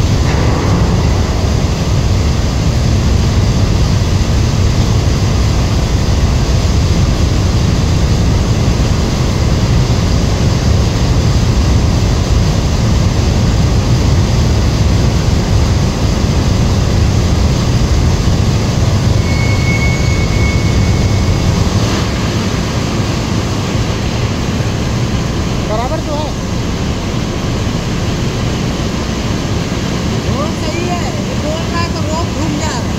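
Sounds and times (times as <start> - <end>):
turbulent water rushing: 0.0 - 32.9
faint high whistle: 19.2 - 21.8.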